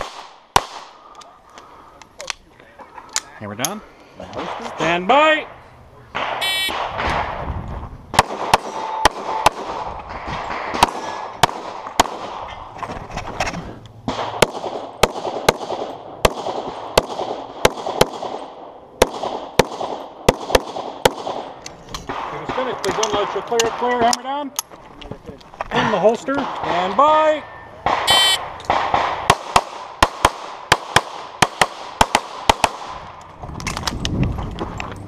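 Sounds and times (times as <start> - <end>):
shot timer beep: 6.4 - 6.7, 28.1 - 28.4
handgun firing rapid shots: 8.2 - 12.4, 14.1 - 21.5, 27.9 - 33.0.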